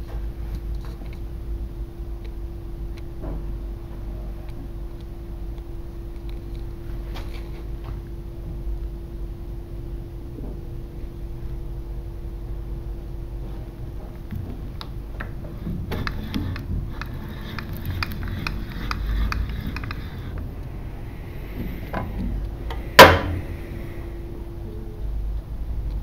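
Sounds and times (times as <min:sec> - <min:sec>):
faint steady hum: 0:00.0 - 0:26.0
lathe slides clicking and clattering: 0:15.2 - 0:20.7
sharp loud knock: 0:23.0 - 0:23.4.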